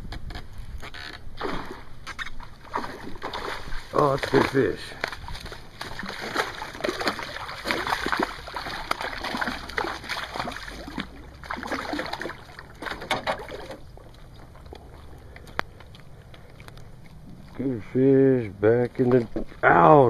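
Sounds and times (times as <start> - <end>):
fish thrashing and splashing: 1.2 - 17.7.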